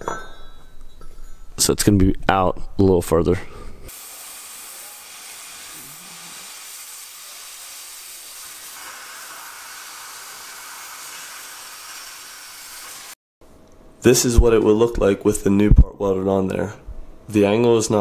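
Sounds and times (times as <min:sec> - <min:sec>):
cutting torch hissing: 0:03.9 - 0:13.2.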